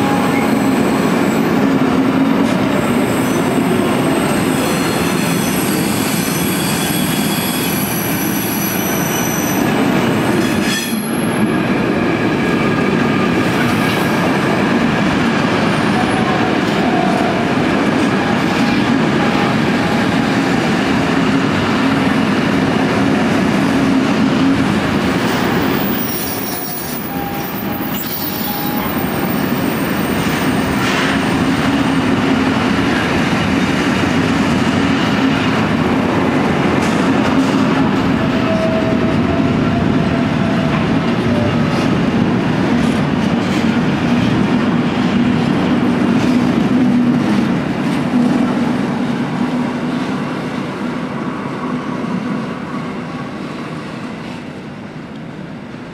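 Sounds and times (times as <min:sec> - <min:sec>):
train wheels rumbling on rail: 0:00.0 - 0:55.9
high-pitched wheel squeals: 0:04.2 - 0:09.7, 0:25.7 - 0:30.8.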